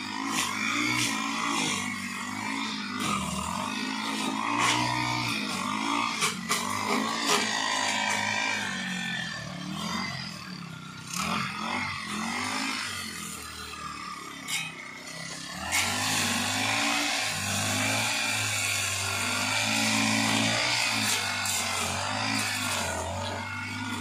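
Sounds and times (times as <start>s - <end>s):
brush cutter engine revving: 0.0s - 24.0s.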